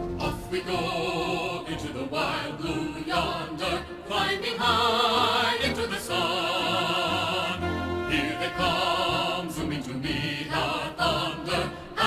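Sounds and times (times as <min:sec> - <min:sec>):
orchestral accompaniment: 0:00.0 - 0:12.0.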